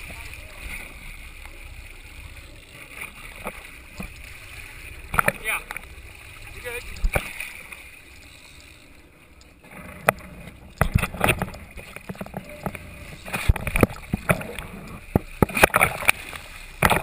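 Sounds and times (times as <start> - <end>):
boat engine rumble: 0.0 - 17.0
knocks and thumps on boat: 9.7 - 16.2, 16.8 - 17.0.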